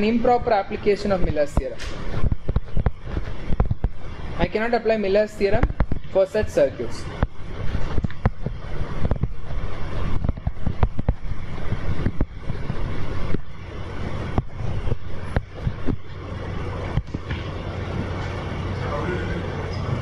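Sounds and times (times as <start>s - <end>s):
low hum: 0.0s - 20.0s
sharp clicks and knocks: 1.5s - 4.1s, 5.5s - 6.1s, 7.1s - 16.2s, 16.9s - 17.6s.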